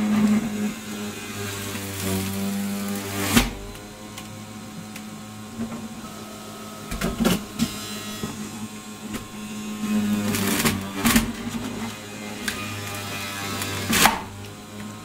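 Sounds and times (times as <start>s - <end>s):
juicer motor humming: 0.0s - 15.0s
knocks of produce in juicer: 13.9s - 14.4s.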